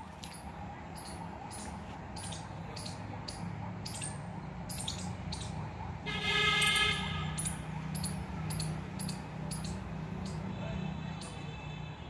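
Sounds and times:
low traffic hum: 0.0s - 12.0s
vehicle horn: 6.0s - 7.6s.

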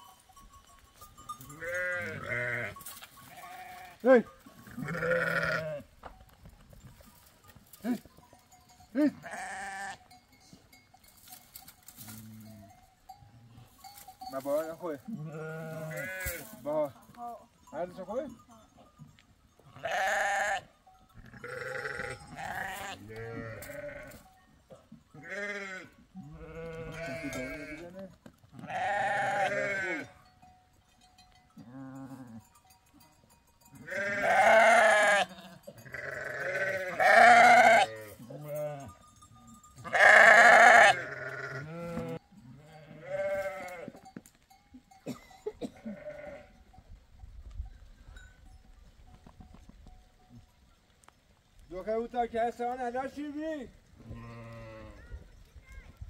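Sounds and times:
goats bleating: 1.2s - 5.9s, 8.9s - 10.1s, 14.6s - 16.8s, 19.7s - 24.2s, 25.2s - 30.2s, 33.8s - 39.0s, 39.6s - 44.0s, 45.6s - 46.6s, 54.1s - 55.0s.

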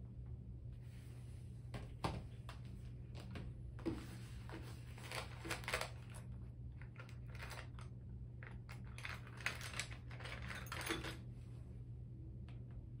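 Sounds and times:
low steady hum: 0.0s - 13.0s
plastic pouch crinkling and clicking: 5.0s - 10.2s.

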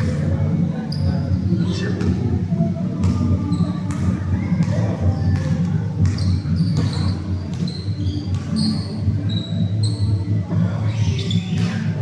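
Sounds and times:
sneaker squeaks: 0.9s - 1.3s, 3.0s - 12.0s
basketball bouncing: 3.8s - 8.8s.

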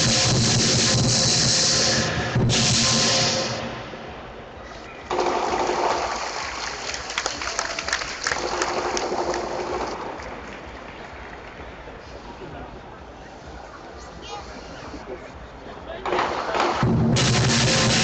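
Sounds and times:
lion dance drumming: 0.0s - 1.8s, 16.0s - 18.0s
crowd applause: 5.1s - 12.7s.

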